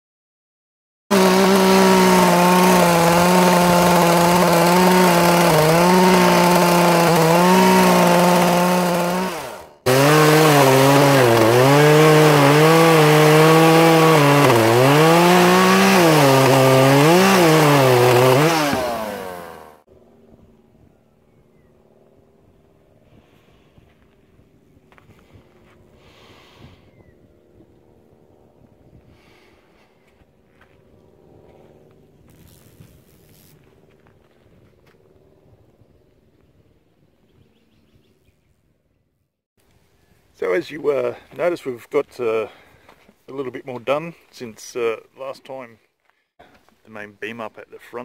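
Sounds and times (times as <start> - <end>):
power drill boring into wood: 1.1 - 19.8.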